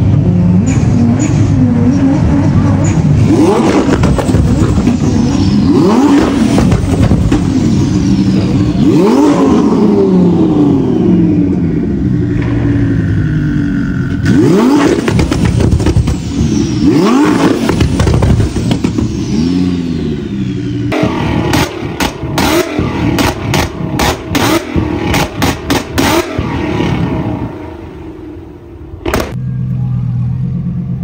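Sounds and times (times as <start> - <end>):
sports car engine revving: 0.0 - 29.7
exhaust pops and crackles: 3.4 - 5.2, 6.1 - 7.7, 14.8 - 16.4, 17.4 - 19.1, 21.0 - 26.4.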